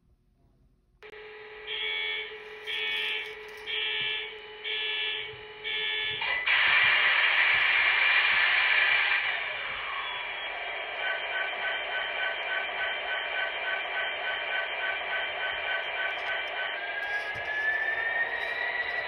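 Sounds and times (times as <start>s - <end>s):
locomotive bell ringing: 1.7s - 4.3s
rushing engine sound: 6.3s - 19.0s.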